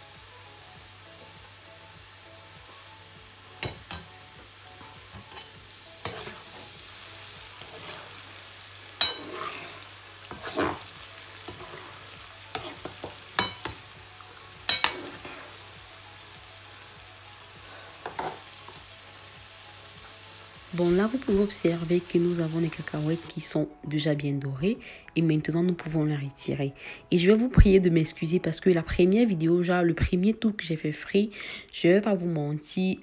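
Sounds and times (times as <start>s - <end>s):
peanuts deep-frying in oil: 3.2s - 23.4s.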